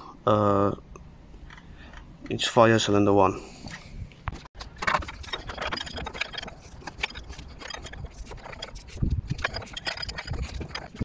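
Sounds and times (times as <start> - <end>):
wrench clicking and scraping: 4.6 - 11.0.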